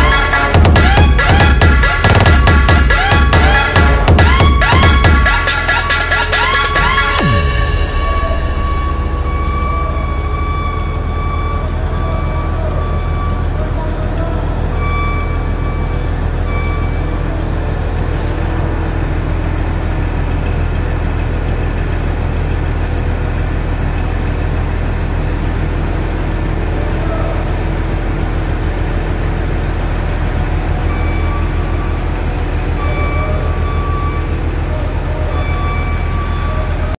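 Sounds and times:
electronic warning beeps: 0:00.0 - 0:18.2, 0:30.4 - 0:36.9
diesel engine droning: 0:00.0 - 0:36.9.

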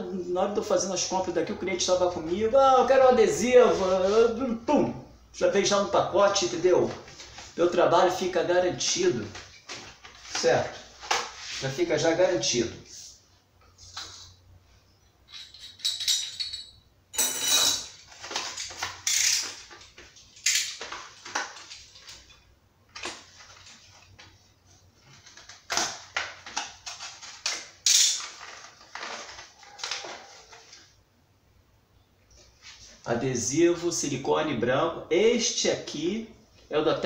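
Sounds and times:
metal parts clinking on stone: 0:15.3 - 0:17.9, 0:19.0 - 0:19.6
plastic blister pack crinkling: 0:25.0 - 0:30.9.

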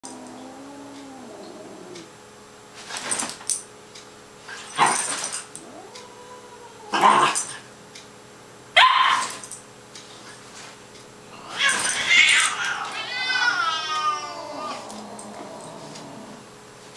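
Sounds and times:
puppy barking: 0:08.8 - 0:09.4.

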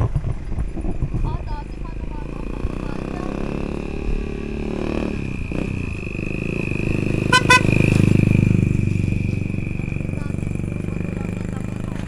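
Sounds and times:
engine running: 0:00.0 - 0:12.0
vehicle horn beeps: 0:07.2 - 0:07.9.

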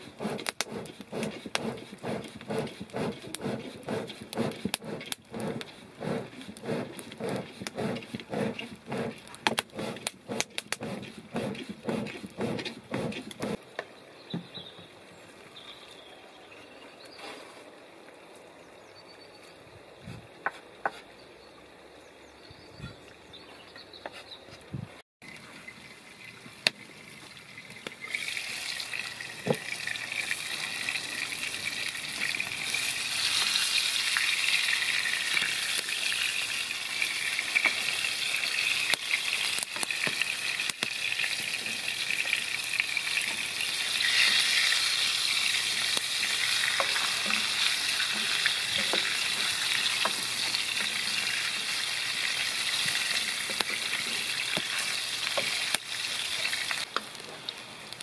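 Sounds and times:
patties sizzling in oil: 0:25.2 - 0:58.0.

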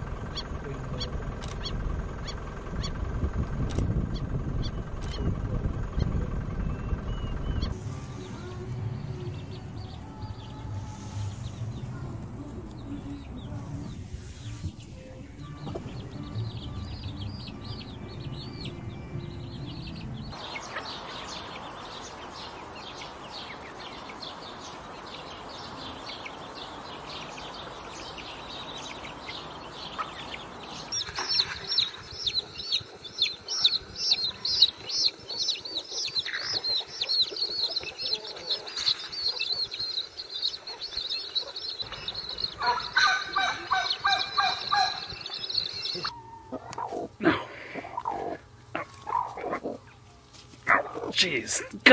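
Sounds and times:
low rumble: 0:00.0 - 0:22.1
chicks peeping: 0:00.2 - 0:08.4, 0:09.3 - 0:51.9.

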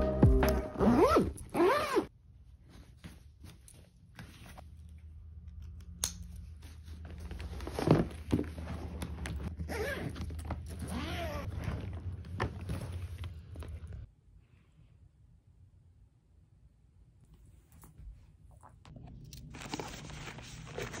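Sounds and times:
suitcase zipper: 0:00.8 - 0:02.1, 0:09.5 - 0:12.7.

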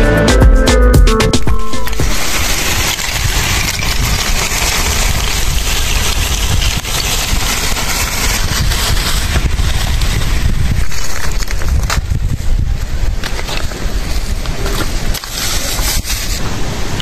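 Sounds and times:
charcoal lumps clattering: 0:01.6 - 0:12.1
plastic sack rustling: 0:01.6 - 0:16.7.

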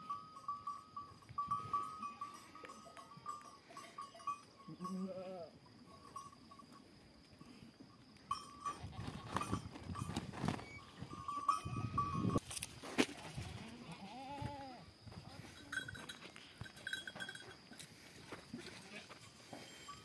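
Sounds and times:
goat bleating: 0:04.7 - 0:05.5, 0:13.3 - 0:14.8.

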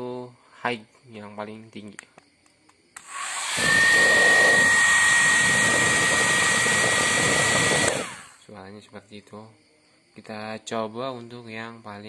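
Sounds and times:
hair dryer switch click: 0:03.0 - 0:03.2
hair dryer whirring: 0:03.0 - 0:08.4.

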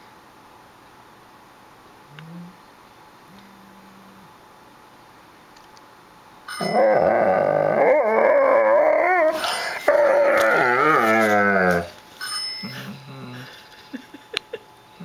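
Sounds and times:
dog howling: 0:06.6 - 0:12.0.

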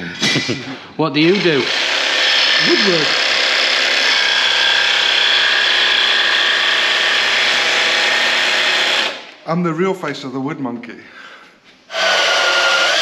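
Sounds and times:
jigsaw cutting wood: 0:01.2 - 0:09.3, 0:11.9 - 0:13.0.

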